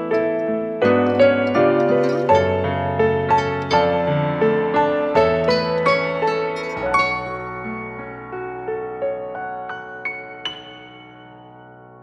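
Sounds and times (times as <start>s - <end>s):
nylon-string guitar notes: 0.0s - 8.6s
piano notes: 0.0s - 12.0s.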